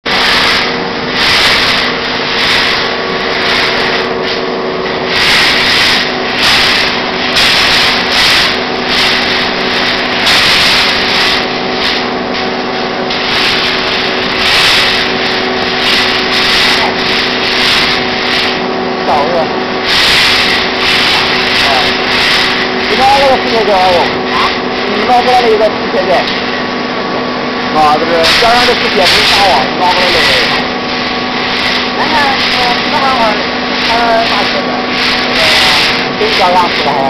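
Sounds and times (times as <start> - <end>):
hissing crackling welding noise: 0.0 - 37.0
welding machine hum: 0.0 - 37.0.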